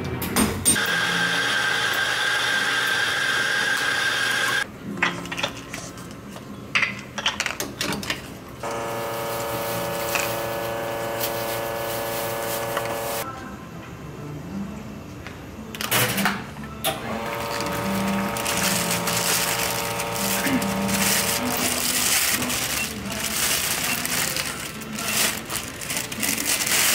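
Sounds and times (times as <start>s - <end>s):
machine whir with high tone: 0.8s - 4.6s, 8.6s - 13.2s
pitched machine hum: 8.6s - 13.2s, 17.0s - 26.9s.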